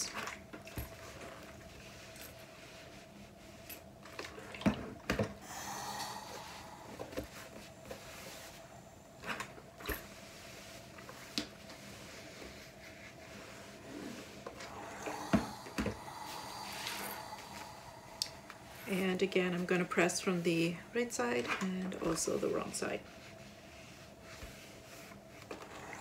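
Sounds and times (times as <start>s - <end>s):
faint steady hum: 0.0s - 26.0s
iron sliding over cloth: 5.4s - 26.0s
hands smoothing fabric: 5.5s - 9.2s, 10.0s - 20.7s, 22.3s - 26.0s.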